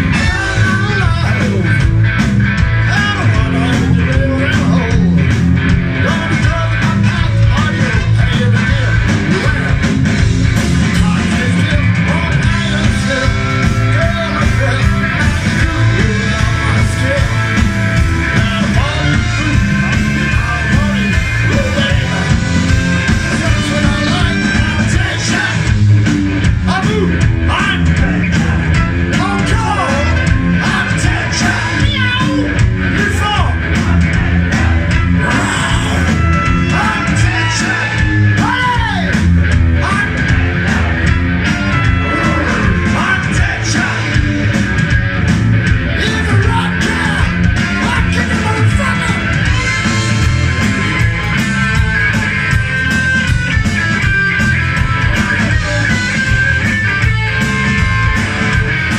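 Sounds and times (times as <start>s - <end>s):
person singing and shouting: 0.0s - 1.8s, 2.8s - 5.3s, 6.0s - 9.9s, 10.8s - 25.7s, 26.6s - 41.0s, 41.7s - 44.2s, 45.9s - 49.6s
bass guitar: 0.0s - 58.9s
drums: 0.0s - 58.9s
electric guitar: 0.0s - 58.9s.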